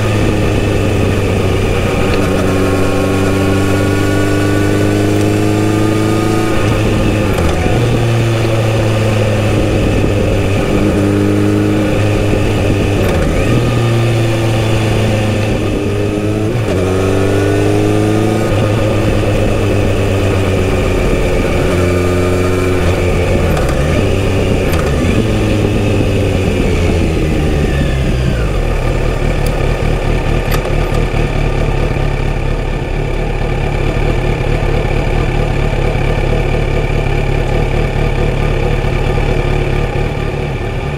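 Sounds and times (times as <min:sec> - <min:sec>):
motorcycle engine shifting gears: 0:00.0 - 0:40.9
motorcycle engine idling: 0:18.6 - 0:40.9.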